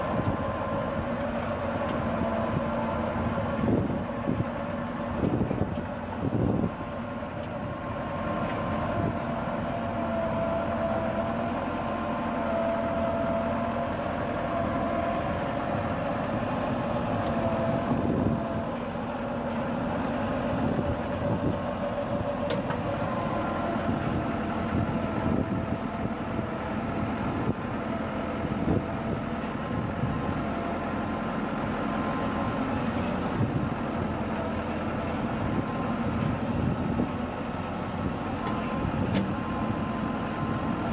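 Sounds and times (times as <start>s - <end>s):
tractor diesel engine running: 0.0s - 40.9s.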